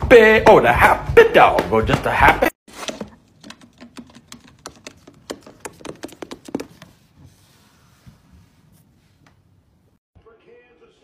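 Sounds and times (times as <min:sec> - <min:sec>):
paws tapping on wooden floor: 0:03.3 - 0:07.0.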